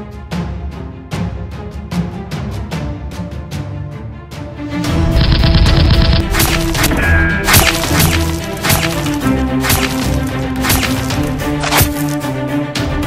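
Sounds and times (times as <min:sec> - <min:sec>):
action background music: 0:00.0 - 0:13.0
sharp percussive hits: 0:05.1 - 0:12.2.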